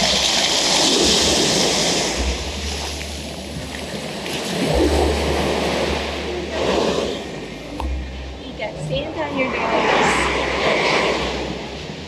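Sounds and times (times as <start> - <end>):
ocean surf washing on beach: 0.0 - 7.7
wind rumble on microphone: 0.0 - 12.0.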